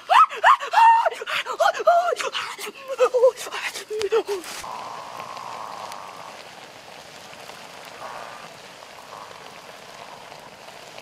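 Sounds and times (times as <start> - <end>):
wood fire crackling: 0.0 - 11.0
liquid bubbling in wok: 4.3 - 11.0.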